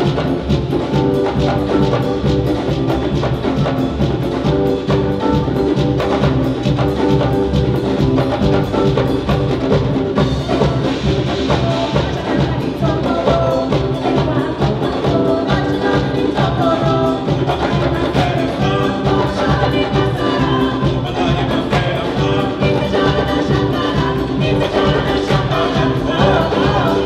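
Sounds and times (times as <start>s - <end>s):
drums fast steady beat: 0.0s - 27.0s
live band playing dance music: 0.0s - 27.0s.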